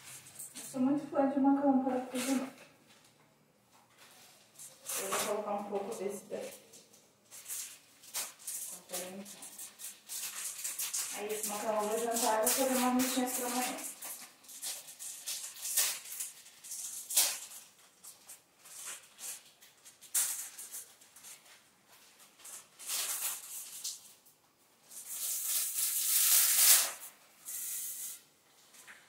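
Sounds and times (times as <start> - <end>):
dry pasta rattling in plastic bag: 4.4 - 24.2, 24.8 - 28.2.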